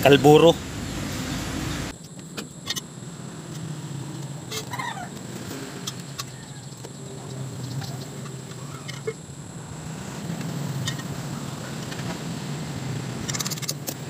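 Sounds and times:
low hum: 0:00.0 - 0:14.0
bird call: 0:04.6 - 0:05.1.

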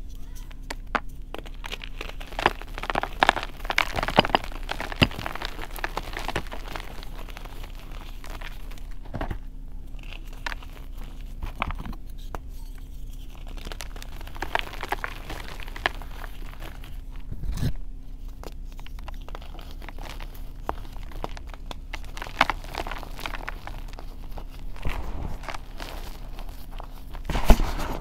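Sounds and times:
chalk crunching and crumbling: 0:00.0 - 0:28.0.

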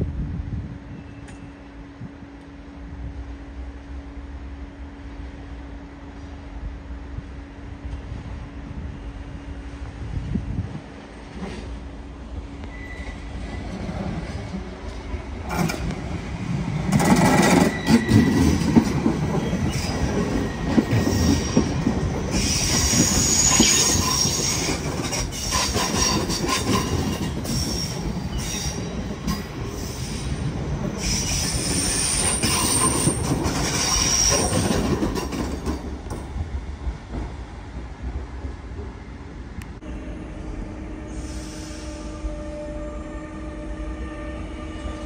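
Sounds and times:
train wheels rumbling over rails: 0:00.0 - 0:43.0
high-pitched wheel squeal: 0:17.3 - 0:18.7, 0:19.4 - 0:29.0, 0:29.8 - 0:34.8.

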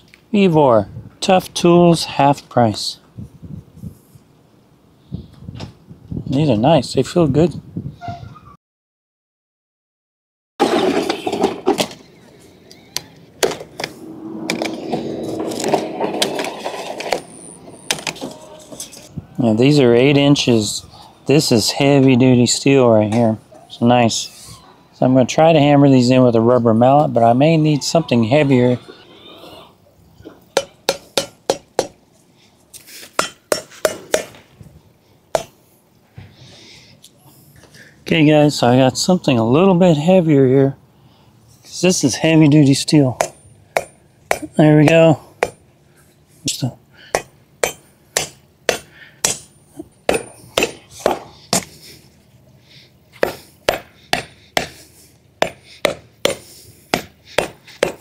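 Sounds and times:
mallet striking steel edging: 0:47.2 - 0:49.5, 0:50.1 - 0:51.7, 0:55.4 - 0:58.0
hammer knocking on steel strip: 0:57.0 - 0:58.0.

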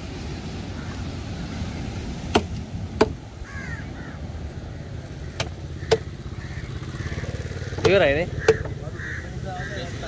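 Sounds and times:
crow cawing: 0:03.4 - 0:10.0.

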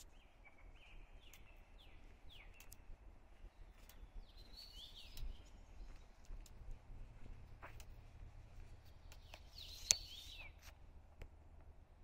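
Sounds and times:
songbird whistling song: 0:00.0 - 0:06.2, 0:09.1 - 0:10.7.

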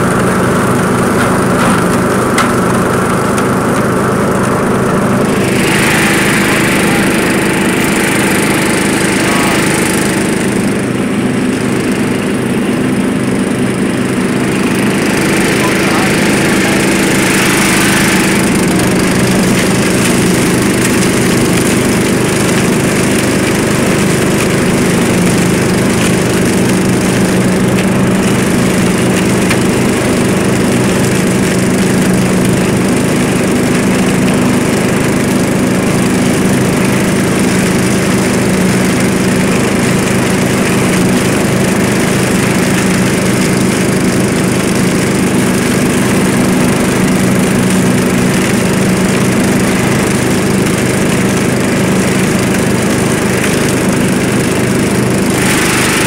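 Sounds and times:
leaves rushing through chute: 0:00.0 - 0:10.6, 0:54.3 - 0:56.0
lawn mower engine running: 0:00.0 - 0:56.0.

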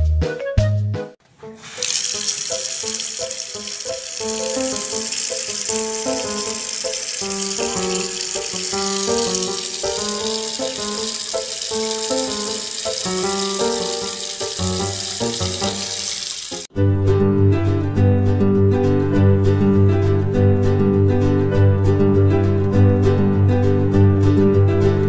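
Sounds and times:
water running from tap: 0:01.6 - 0:16.7.

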